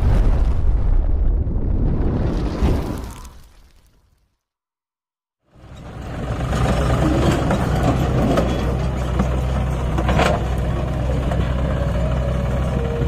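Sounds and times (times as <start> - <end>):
diesel engine under load: 5.5 - 13.0.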